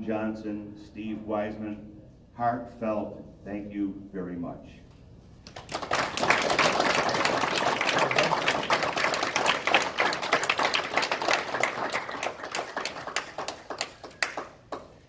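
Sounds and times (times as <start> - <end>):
audience applauding: 5.5 - 15.0.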